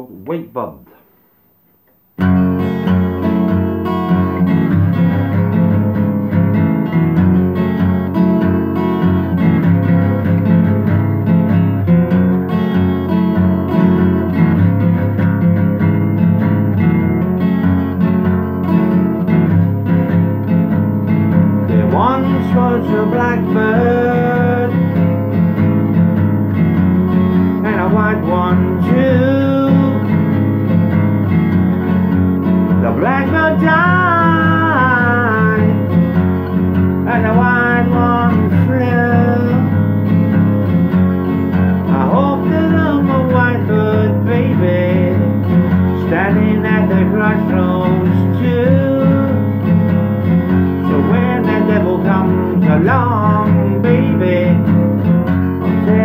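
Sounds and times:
acoustic guitar strumming: 0.9 - 56.0
person singing: 21.7 - 25.0, 27.6 - 30.1, 32.8 - 36.2, 37.0 - 40.0, 41.6 - 49.7, 50.6 - 54.9, 55.6 - 56.0.

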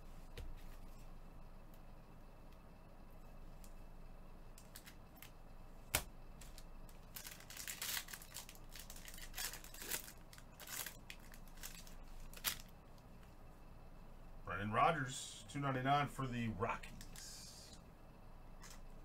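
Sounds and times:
foil wrapper tearing and crinkling: 6.4 - 12.7.

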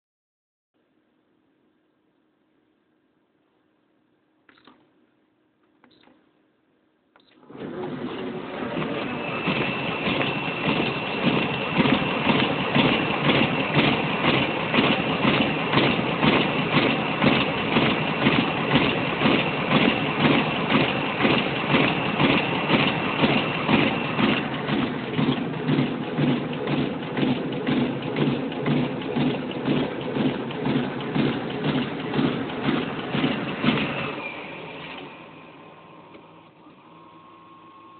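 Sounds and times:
duplicator mechanism beating: 8.8 - 34.2.

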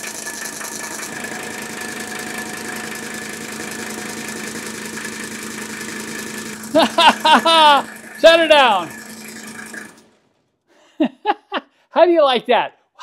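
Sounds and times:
diesel engine idling: 0.0 - 10.2.

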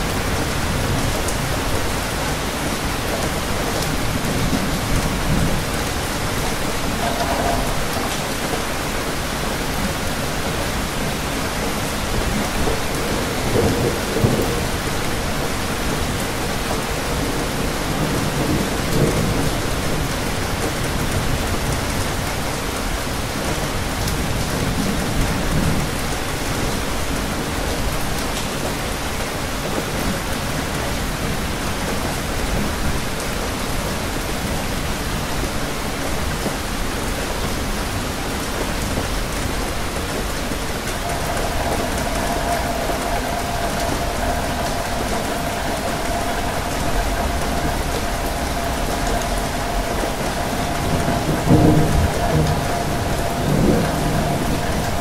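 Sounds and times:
thunder rumbling: 0.0 - 22.2, 40.2 - 55.0
steady rain: 0.0 - 55.0.

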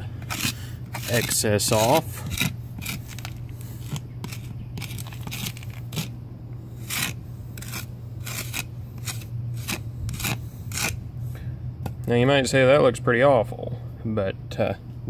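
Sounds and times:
wire brush scraping brick: 0.0 - 11.0.

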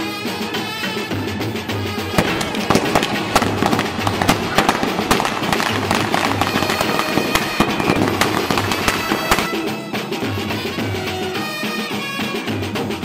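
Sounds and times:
background music: 0.0 - 13.0
firecrackers banging: 1.8 - 9.8.

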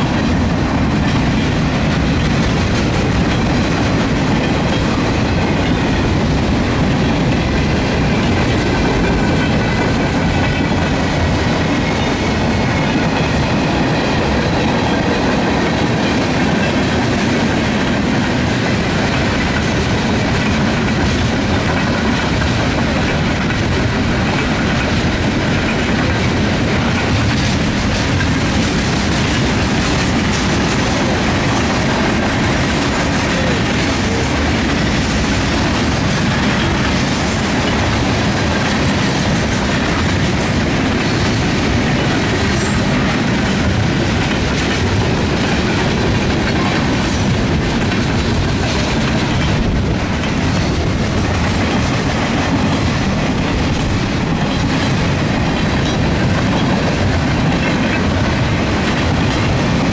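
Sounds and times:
freight train wheels rumbling: 0.0 - 59.9
wheels clicking over rail joints: 0.0 - 59.9.

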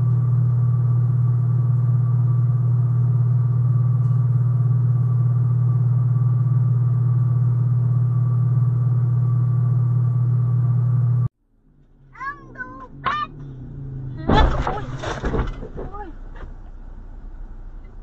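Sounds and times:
steady low hum: 0.0 - 18.0
motorbike crashing into truck: 14.1 - 16.5.

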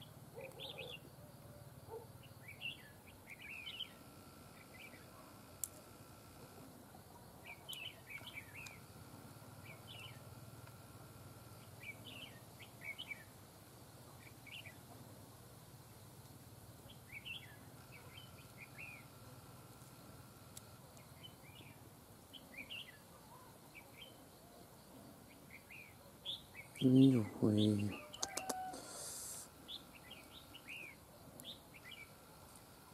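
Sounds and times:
birds calling: 0.0 - 1.1, 16.9 - 19.2, 25.3 - 32.2.

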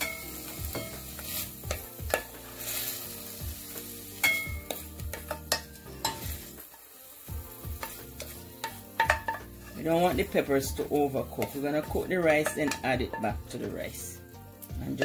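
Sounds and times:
oil sizzling in pan: 0.0 - 15.0
wooden spoon scraping frying pan: 0.1 - 4.0, 7.6 - 14.0.

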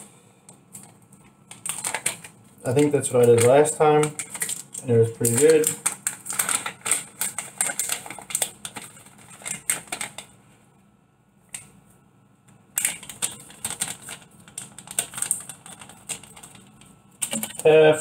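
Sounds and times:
spice jar shaking rattle: 12.8 - 17.6.

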